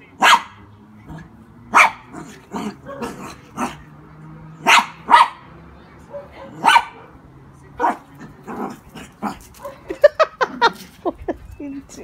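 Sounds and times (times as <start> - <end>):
small dog barking: 0.2 - 0.6, 1.7 - 3.8, 4.6 - 5.5, 6.1 - 7.1, 7.8 - 9.9.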